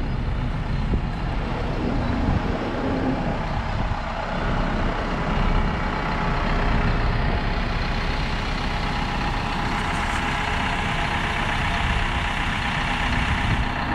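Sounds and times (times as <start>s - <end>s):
diesel truck engine idling: 0.0s - 13.9s.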